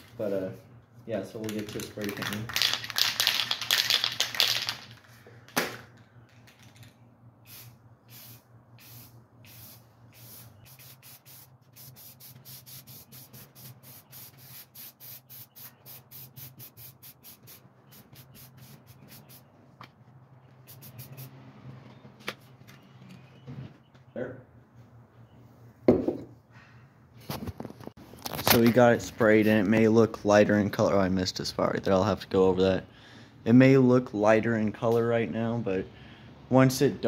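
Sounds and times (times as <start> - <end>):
spray paint can hissing: 7.4 - 19.5, 20.6 - 21.3.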